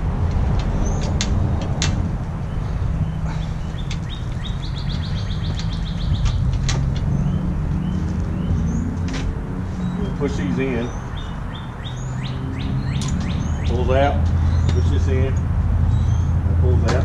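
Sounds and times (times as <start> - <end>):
steady low rumble: 0.0 - 17.0
sharp clicks of parts handled: 0.3 - 2.0, 13.0 - 13.3
bird trilling and chirping: 2.4 - 9.0, 9.8 - 15.0.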